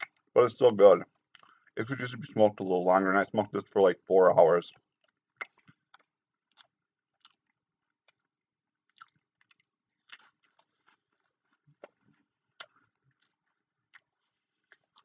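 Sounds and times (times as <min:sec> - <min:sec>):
person chewing: 0:01.1 - 0:01.8, 0:04.8 - 0:15.0.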